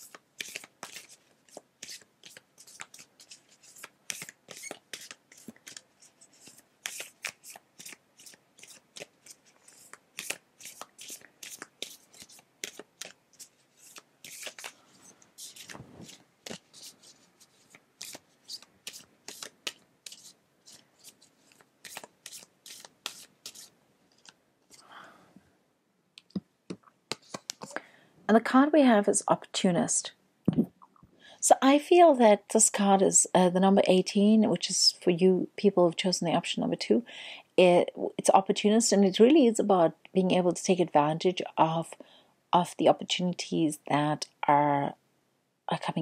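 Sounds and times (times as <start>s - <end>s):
cards being shuffled: 0.0s - 24.8s, 27.1s - 27.8s.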